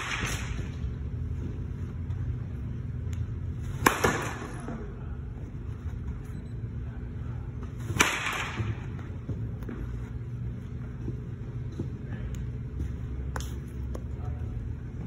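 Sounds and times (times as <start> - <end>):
baseball bat cracking ball: 0.0 - 0.7, 3.7 - 4.8, 7.8 - 9.0
low hum: 0.0 - 15.0.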